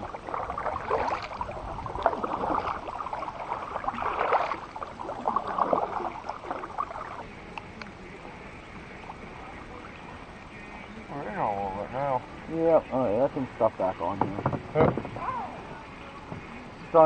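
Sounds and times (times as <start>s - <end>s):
paddle splashing in water: 0.0s - 11.1s, 14.0s - 16.8s
faint steady hiss: 0.0s - 17.0s.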